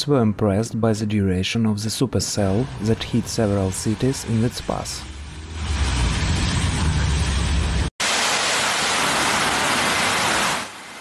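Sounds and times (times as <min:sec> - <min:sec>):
water jetting up from street: 0:02.6 - 0:11.0
heavy rain: 0:05.3 - 0:11.0
hissing rush of floodwater: 0:08.0 - 0:11.0.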